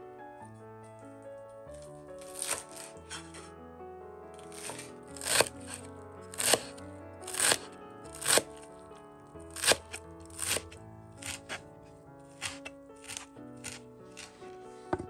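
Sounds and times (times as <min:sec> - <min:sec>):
soft background music: 0:00.0 - 0:15.0
knife chopping herbs on wooden board: 0:02.2 - 0:03.5, 0:04.4 - 0:08.5, 0:09.5 - 0:11.6, 0:12.3 - 0:15.0.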